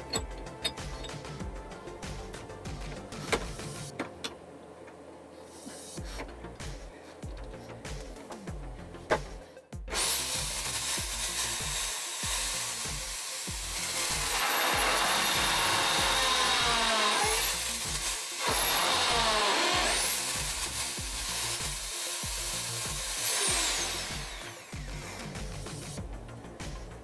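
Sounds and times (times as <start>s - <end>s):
drill spinning down: 9.9s - 25.6s
drill cutting through wood: 9.9s - 25.9s.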